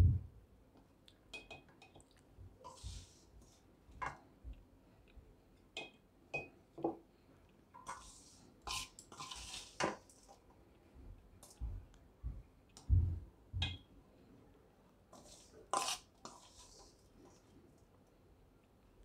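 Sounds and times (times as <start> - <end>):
spoon clinking against dishes: 1.3 - 2.0.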